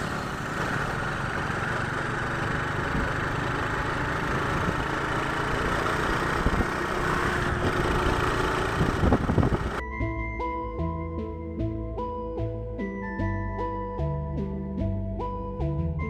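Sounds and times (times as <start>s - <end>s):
motorcycle engine drone: 0.0s - 10.2s
road noise: 0.0s - 11.3s
wind rush: 7.4s - 9.8s.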